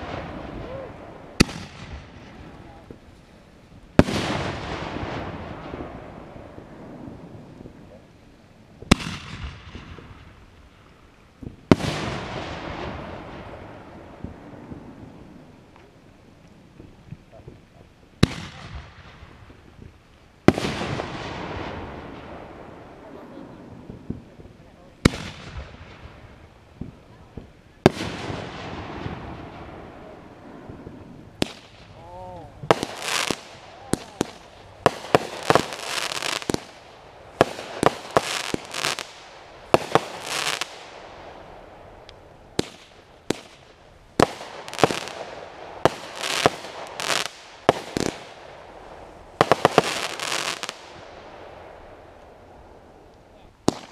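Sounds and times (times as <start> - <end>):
firework bang: 0.0 - 3.0
firework burst echo: 0.0 - 3.0, 8.8 - 15.6, 18.2 - 53.9
firework shells bursting: 30.8 - 51.4, 53.1 - 53.9.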